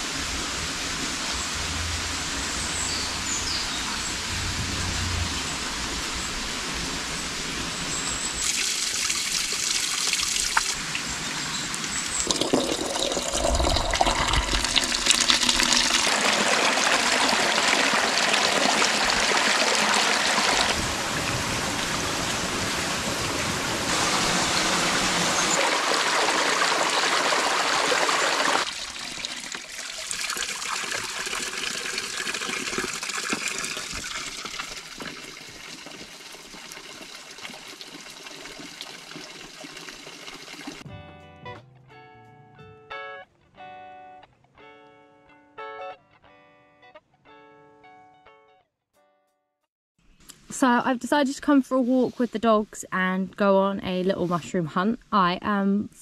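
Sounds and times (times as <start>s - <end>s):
water pouring from pipe: 8.3s - 11.1s, 11.8s - 22.8s, 23.8s - 40.8s
stream splashing over rocks: 8.3s - 11.2s, 11.9s - 40.8s.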